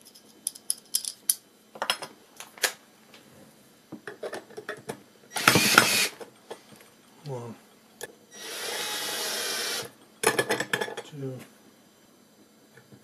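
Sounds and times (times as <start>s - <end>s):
cordless drill driving screw: 5.4s - 6.1s, 8.4s - 9.9s.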